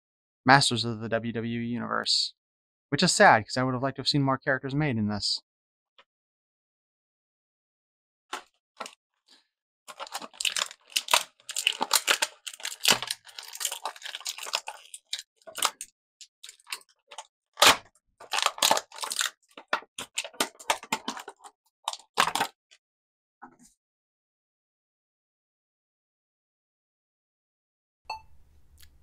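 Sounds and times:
plastic and cardboard packaging tearing: 9.9 - 22.6.

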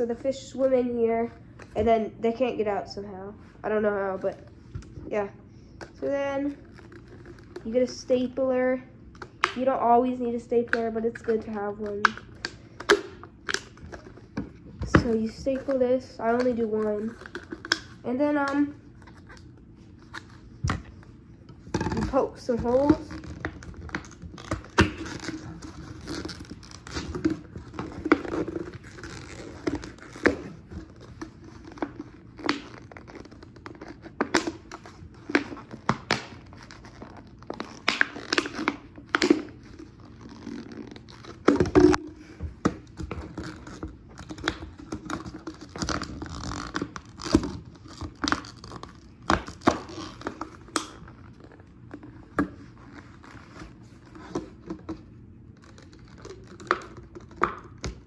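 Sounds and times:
plastic bottle crinkling and cracking: 16.5 - 53.6, 54.2 - 58.0.

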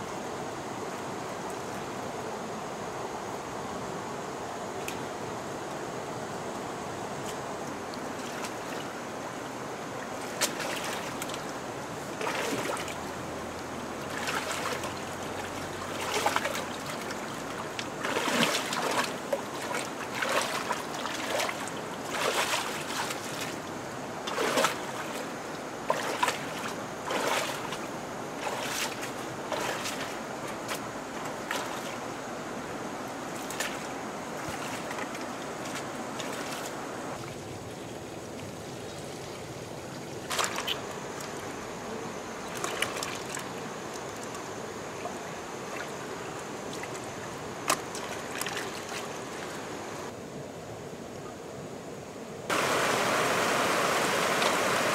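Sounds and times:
hands splashing in muddy water: 10.3 - 11.4, 12.2 - 13.0, 14.0 - 23.6, 24.3 - 25.3, 25.9 - 32.0, 33.4 - 37.4, 40.3 - 40.9, 42.5 - 43.5, 47.6 - 49.6.

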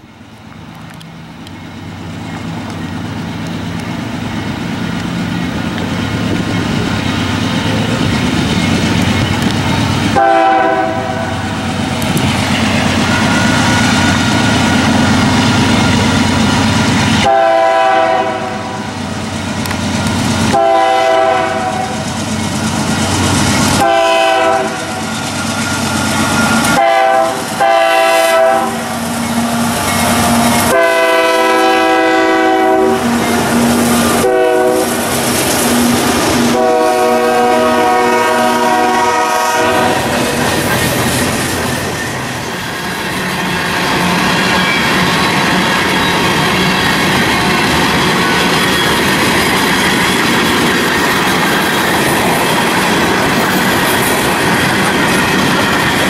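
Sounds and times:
diesel locomotive engines rumbling: 0.0 - 56.0
train air horn blasts: 10.1 - 11.6, 17.2 - 19.0, 20.5 - 22.0, 23.8 - 25.1, 26.6 - 35.1, 35.7 - 40.2.

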